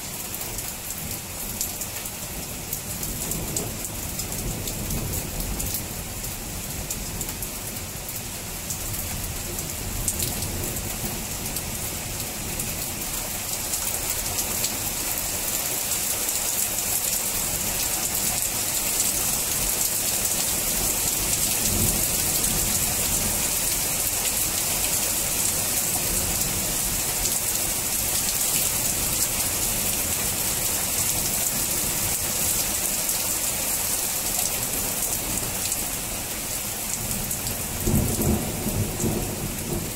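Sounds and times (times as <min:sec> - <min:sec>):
rain pouring down: 0:00.0 - 0:39.9
low rumbles of thunder: 0:37.0 - 0:39.9.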